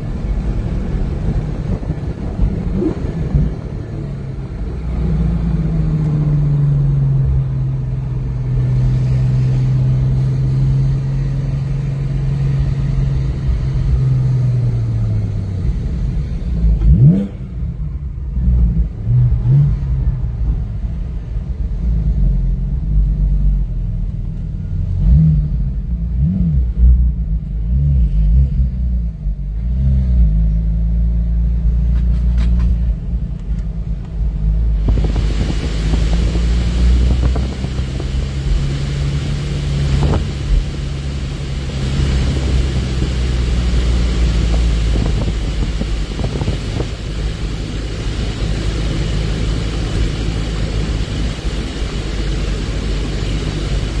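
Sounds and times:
car engine rumble: 0.0s - 54.0s
loud steady hiss: 34.8s - 54.0s.

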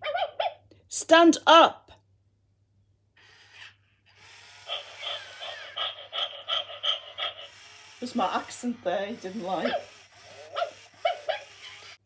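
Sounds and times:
toy puppy panting: 4.6s - 12.0s.

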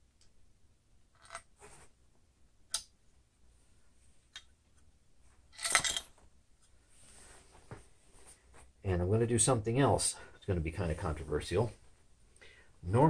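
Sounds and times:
soft rustle: 1.6s - 2.2s, 6.1s - 8.9s.

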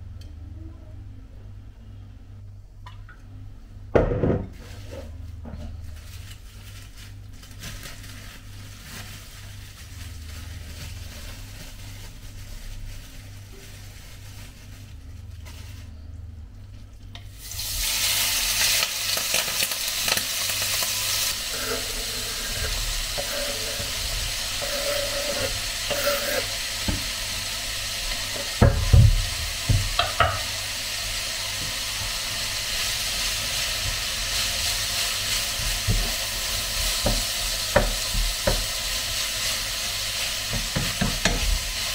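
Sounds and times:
meat sizzling in hot oil: 17.3s - 41.9s.

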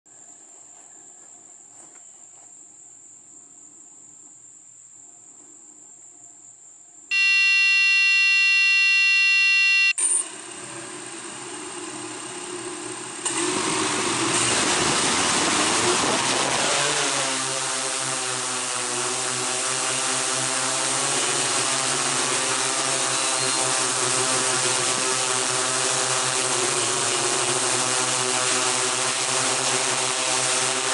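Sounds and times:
faint high whine: 5.0s - 10.4s, 22.2s - 30.9s
electronic beep: 7.1s - 10.2s
motor running: 7.1s - 30.9s.

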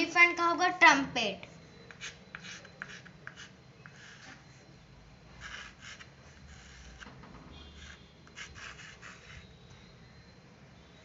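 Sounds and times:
chalk scratching on chalkboard: 1.9s - 4.6s, 5.4s - 9.5s.

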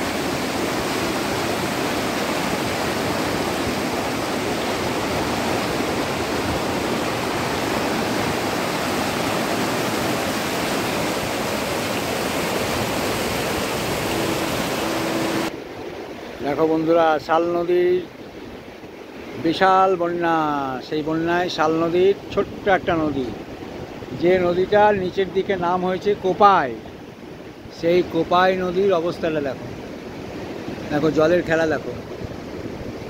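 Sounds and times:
river rapids rushing: 0.0s - 15.5s.

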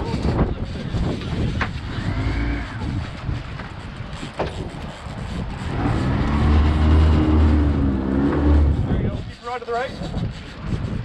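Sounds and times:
outboard motor running: 4.4s - 9.0s.

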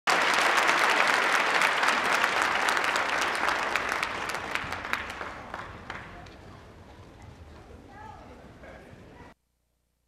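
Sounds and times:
audience applauding: 0.1s - 6.5s.

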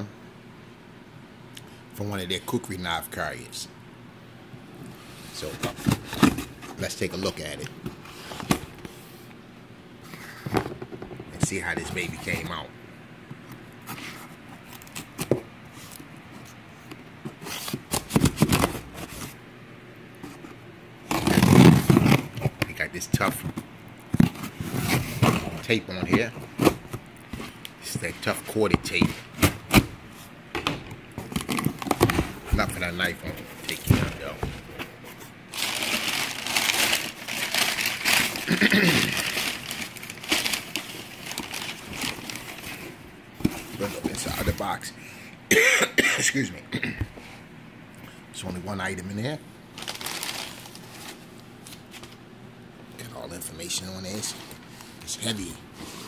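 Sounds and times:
cardboard handling: 20.2s - 30.3s, 31.1s - 44.7s.

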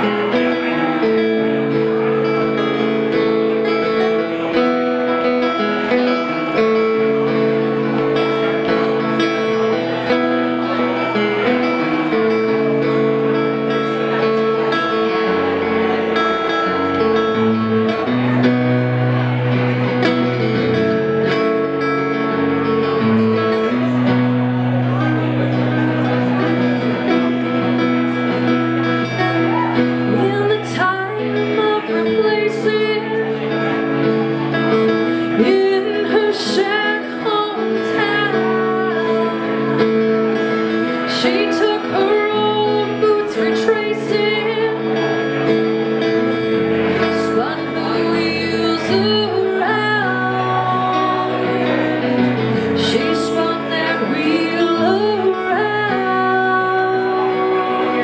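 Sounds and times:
acoustic guitars strumming chords: 0.0s - 58.0s
woman singing: 29.2s - 33.6s, 35.1s - 45.1s, 47.0s - 58.0s.

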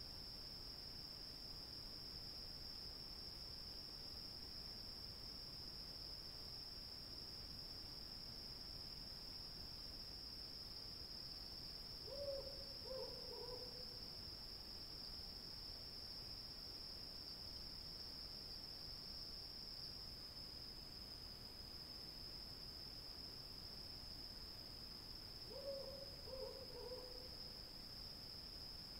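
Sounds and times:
crickets chirring: 8.9s - 28.9s
owl hooting: 12.1s - 13.8s, 25.5s - 27.2s.

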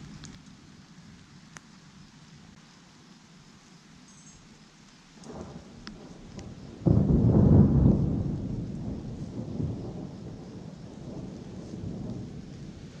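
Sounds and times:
thunder rumbling: 5.2s - 13.0s
loud thunder clap: 5.3s - 13.0s.

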